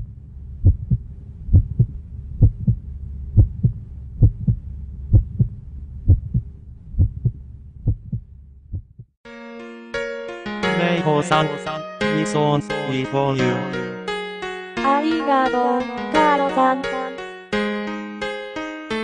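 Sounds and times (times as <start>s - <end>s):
low hum: 0.0s - 9.1s
heartbeat thumps: 0.0s - 9.2s
sustained keyboard chord: 9.3s - 19.0s.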